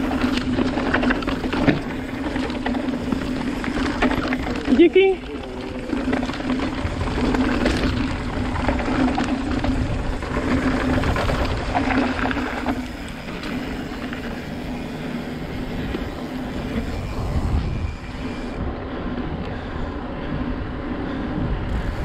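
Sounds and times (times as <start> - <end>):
wind on camera: 0.0 - 14.8, 15.4 - 22.0
tyres crunching over dirt and stones: 0.0 - 16.9
bike rattling over bumps: 0.0 - 22.0.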